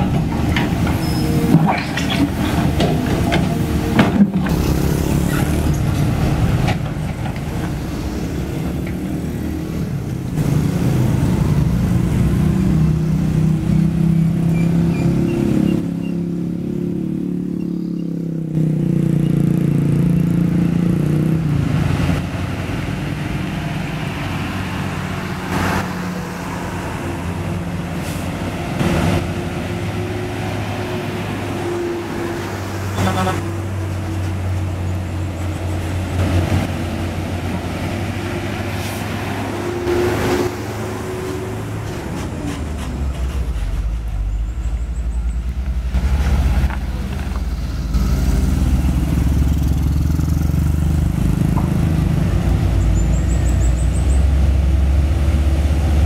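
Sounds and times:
excavator bucket scraping asphalt: 0:00.0 - 0:09.2
heavy diesel engines running: 0:00.0 - 0:56.0.

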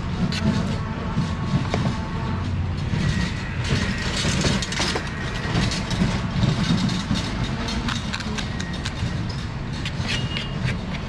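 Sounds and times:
engine rumble: 0:00.0 - 0:11.0
street traffic: 0:00.0 - 0:11.0.

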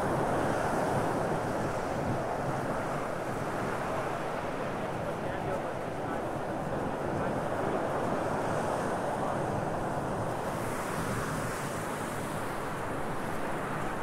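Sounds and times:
small waves washing on beach: 0:00.0 - 0:14.0.

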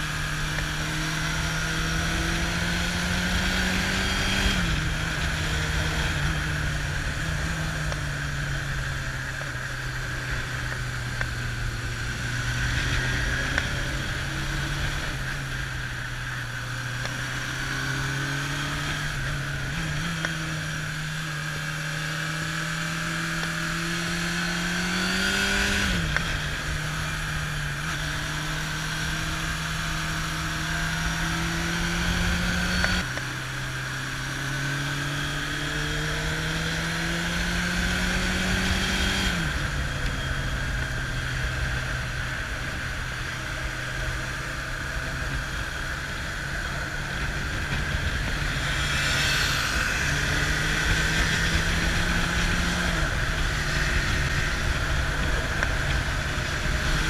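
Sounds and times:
motorcycle engine revving: 0:00.0 - 0:57.0
wind rush on microphone: 0:44.9 - 0:57.0.

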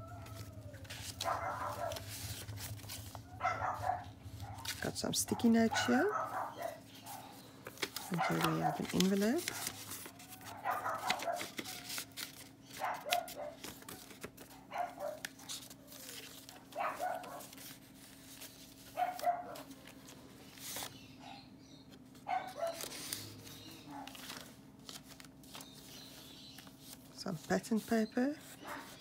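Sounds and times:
paper rustling: 0:00.0 - 0:21.1, 0:21.9 - 0:29.0
dog barking: 0:01.2 - 0:02.1, 0:03.3 - 0:07.4, 0:08.0 - 0:08.9, 0:10.4 - 0:11.8, 0:12.8 - 0:13.6, 0:14.5 - 0:15.5, 0:16.5 - 0:17.6, 0:19.0 - 0:19.7, 0:22.2 - 0:22.9, 0:23.9 - 0:24.2, 0:28.6 - 0:29.0.

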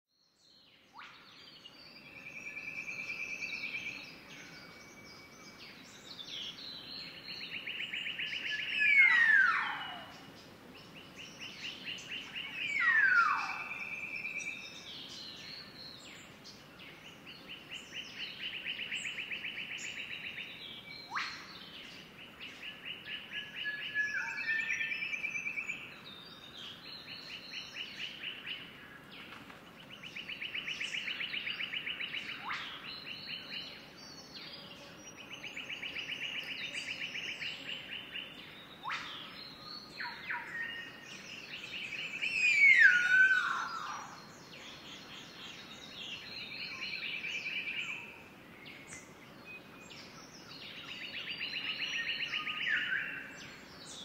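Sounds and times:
bird downward-sliding whistles: 0:42.2 - 0:44.1.

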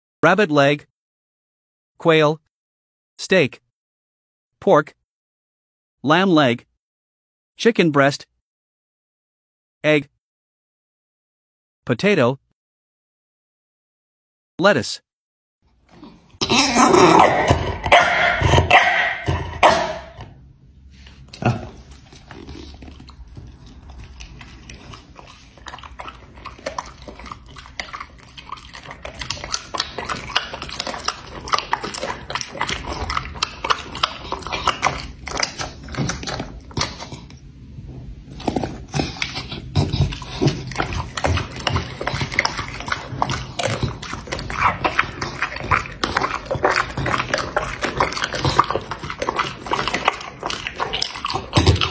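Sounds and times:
dog lip-licking and smacking: 0:21.3 - 0:37.4, 0:38.4 - 0:51.9.

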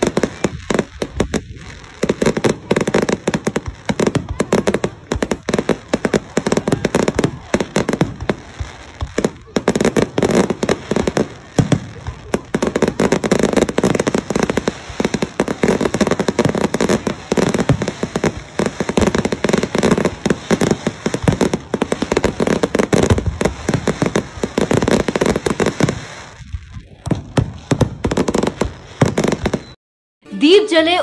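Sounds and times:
fireworks bangs and crackles: 0:00.0 - 0:29.8.

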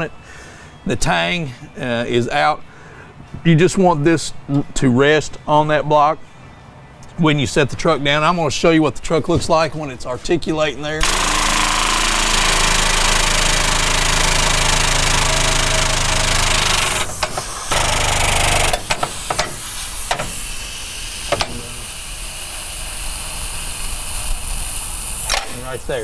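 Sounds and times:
hydraulic hiss: 0:11.0 - 0:26.0
hydraulic lift pump motor humming: 0:11.0 - 0:26.0
sharp clicks: 0:16.0 - 0:20.4, 0:21.2 - 0:21.9, 0:24.2 - 0:25.7.

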